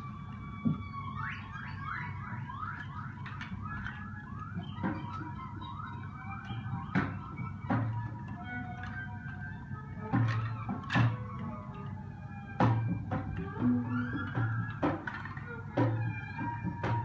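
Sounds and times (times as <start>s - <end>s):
squeaky rising whistle-like call: 0.0s - 17.0s.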